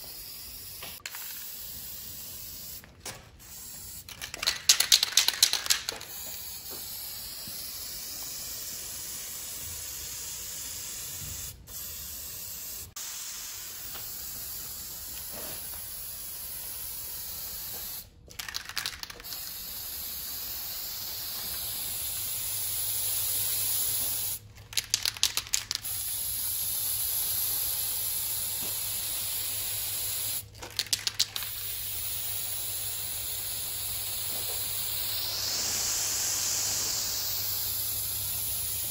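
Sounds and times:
spray-paint can hissing: 0.0s - 38.9s
spray can rattling when shaken: 0.2s - 38.9s.

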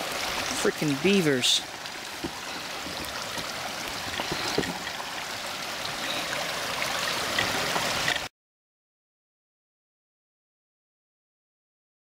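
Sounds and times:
water rushing through channel: 0.0s - 8.3s
water trickling and splashing: 0.0s - 8.3s.

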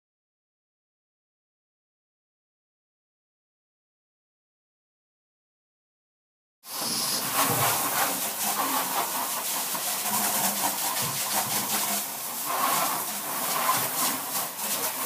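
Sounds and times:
steady hiss: 6.7s - 15.0s.

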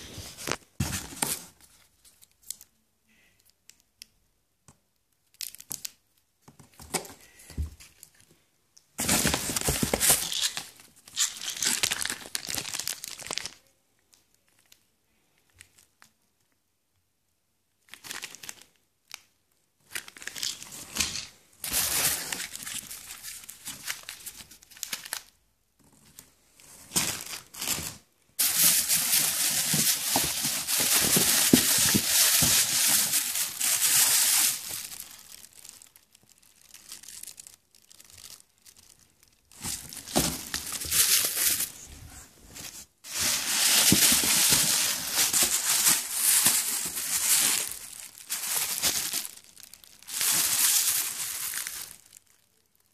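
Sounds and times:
plastic bags crinkling: 9.0s - 13.7s, 17.9s - 19.2s, 19.8s - 25.4s, 26.0s - 52.9s.

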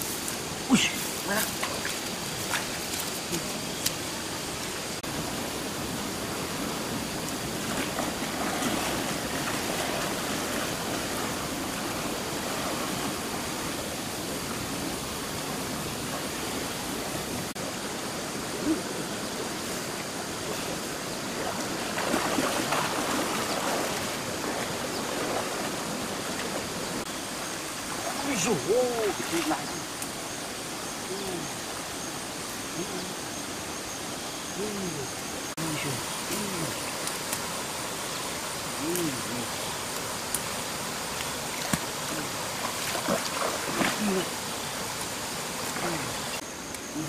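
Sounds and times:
stream rushing: 0.0s - 47.0s
splashing from wading legs: 7.6s - 13.4s, 21.3s - 26.7s, 40.0s - 46.3s.

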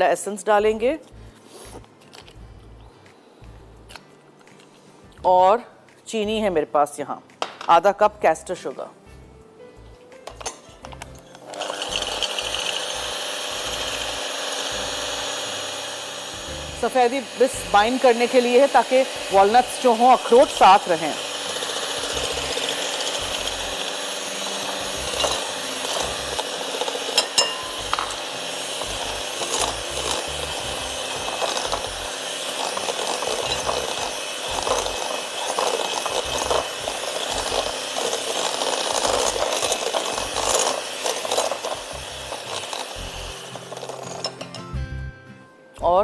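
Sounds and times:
electric hand mixer whisking: 11.4s - 44.4s
beaters clinking on glass bowl: 27.1s - 28.2s.

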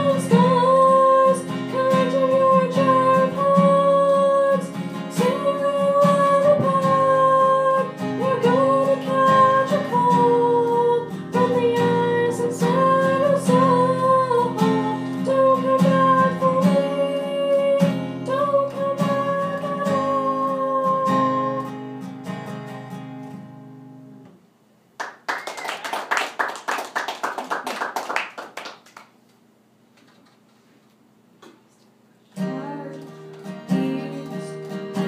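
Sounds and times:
woman singing: 0.0s - 21.8s, 32.4s - 35.0s
strummed acoustic guitar: 0.0s - 24.3s, 32.3s - 35.0s
audience applause: 25.0s - 29.2s.

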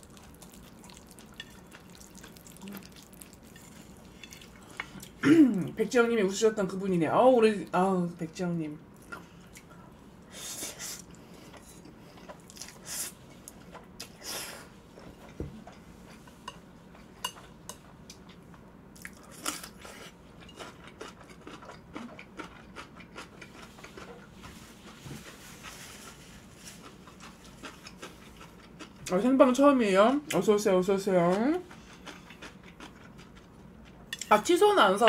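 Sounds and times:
wet chewing and mouth clicks: 0.0s - 5.2s.

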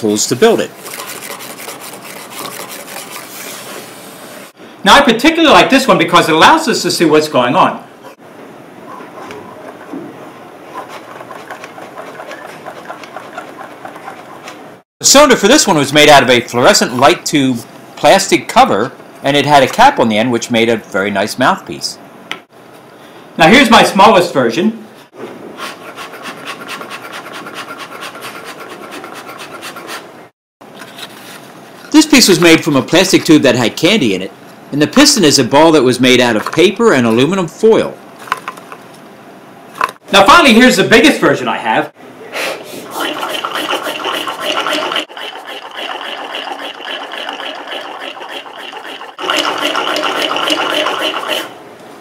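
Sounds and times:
small engine rasping rattle: 43.0s - 51.5s.

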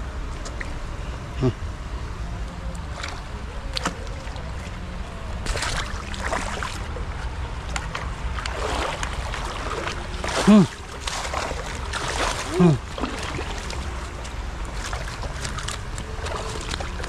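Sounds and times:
wind rumble on microphone: 0.0s - 17.0s
brief human vocal sound: 1.3s - 1.6s, 10.4s - 10.8s, 12.5s - 12.8s
net splashing through water: 5.4s - 7.0s, 7.7s - 17.0s.

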